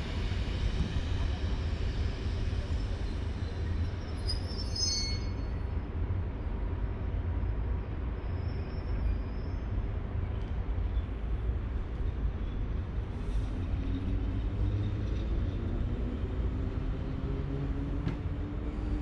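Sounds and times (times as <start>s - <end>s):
train rumble: 0.0s - 19.0s
high-pitched brake squealing: 0.3s - 5.7s, 8.1s - 9.9s.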